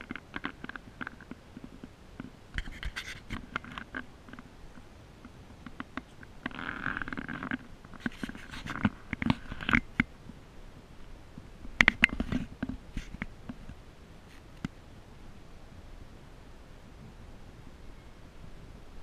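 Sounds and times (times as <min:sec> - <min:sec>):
camera handling rubbing: 0:02.6 - 0:04.4, 0:05.6 - 0:10.0, 0:11.8 - 0:13.3.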